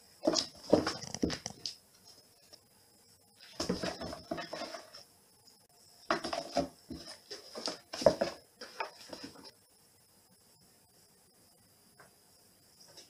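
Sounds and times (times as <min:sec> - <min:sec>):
bumps against cardboard box: 0:06.1 - 0:08.4
paws and claws scrabbling on floor: 0:06.1 - 0:09.5.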